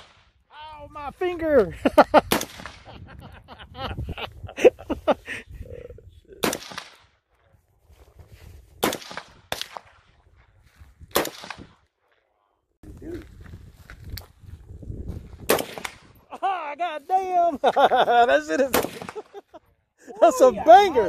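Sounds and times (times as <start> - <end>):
rifle shots with echo: 2.3 - 2.9, 6.4 - 7.1, 8.8 - 10.2, 11.1 - 11.8, 15.4 - 16.2, 18.7 - 19.3.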